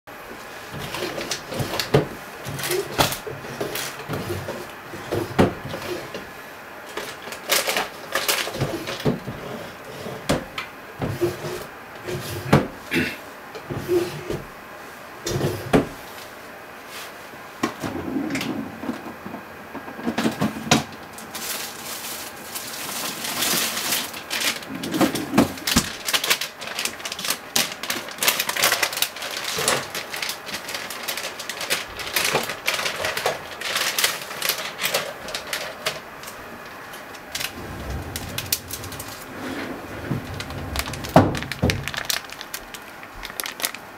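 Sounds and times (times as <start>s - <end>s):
kitchen items clicking and rattling: 6.9s - 10.3s, 21.4s - 36.4s, 37.3s - 43.8s.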